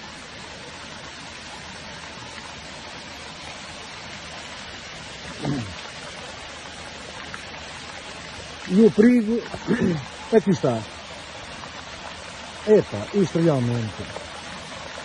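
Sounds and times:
liquid rushing down a street: 0:00.0 - 0:15.0
person speaking: 0:05.4 - 0:05.8, 0:12.6 - 0:14.2.

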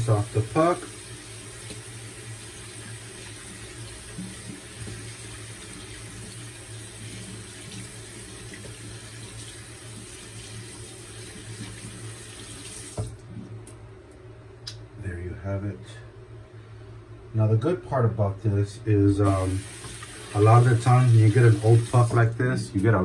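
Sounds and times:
tap water running: 0:00.0 - 0:13.2, 0:19.2 - 0:23.0.

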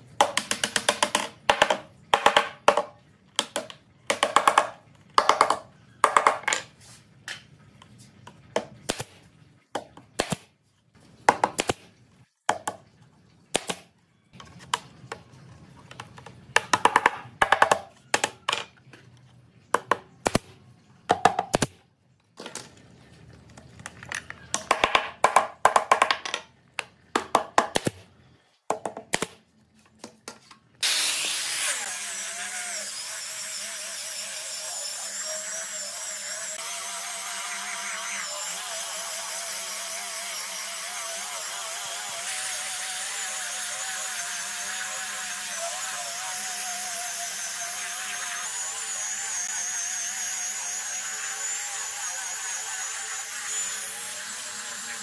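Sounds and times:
angle grinder whining: 0:30.8 - 0:55.0.

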